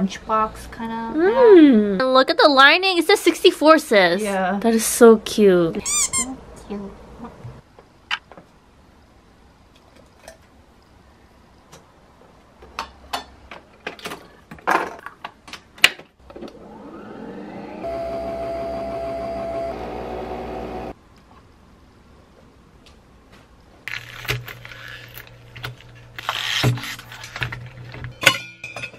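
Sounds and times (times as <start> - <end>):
coffee machine motor whirring: 16.5 - 20.9.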